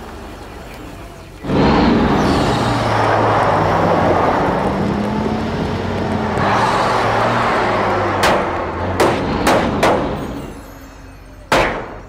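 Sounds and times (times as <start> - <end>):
fire truck engine running: 0.0 - 11.6
sharp hit: 8.1 - 10.6.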